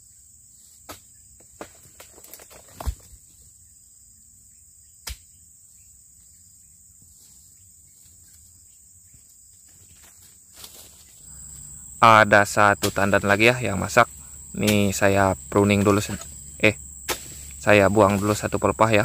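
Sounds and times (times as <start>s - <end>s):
high-pitched insect chirring: 11.0s - 19.0s.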